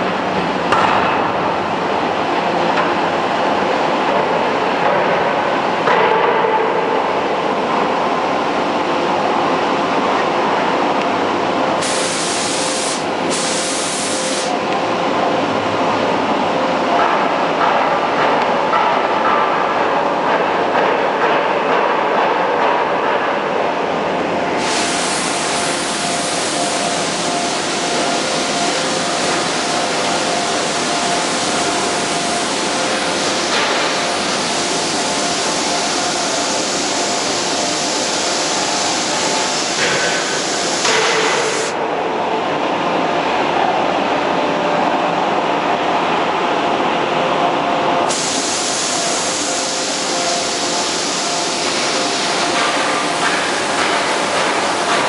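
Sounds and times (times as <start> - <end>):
industrial machinery hiss: 11.6 - 14.7, 24.4 - 41.8, 48.0 - 55.0.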